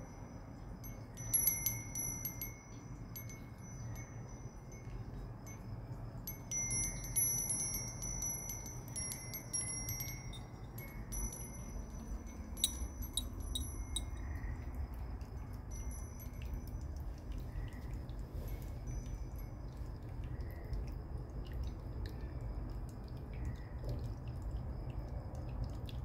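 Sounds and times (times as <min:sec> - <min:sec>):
wind chimes ringing: 0:00.0 - 0:17.0, 0:18.4 - 0:19.7
low steady rumble: 0:00.0 - 0:26.0.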